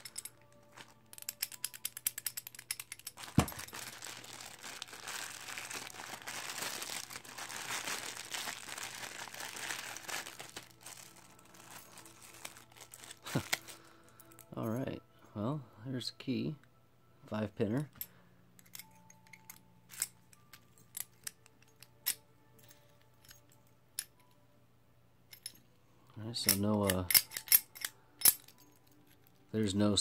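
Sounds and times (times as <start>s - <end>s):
plastic bag crinkling: 2.5s - 14.0s.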